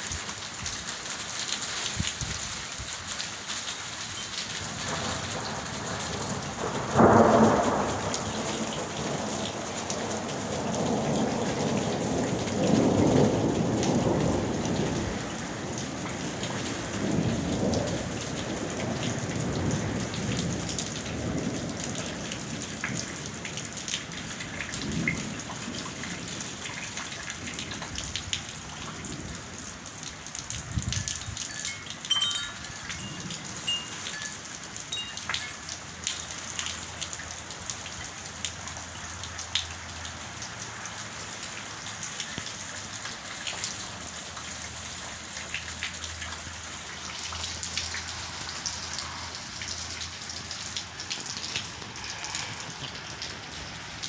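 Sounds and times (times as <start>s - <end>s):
hail and rain pattering: 0.0s - 54.0s
thunder rumbling: 4.6s - 23.2s
thunder clap: 4.8s - 9.4s.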